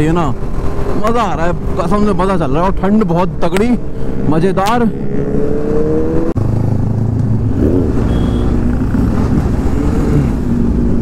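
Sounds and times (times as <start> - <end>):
motorcycle engine accelerating: 0.0 - 11.0
wind: 0.0 - 11.0
other motorcycle exhausts: 3.3 - 11.0.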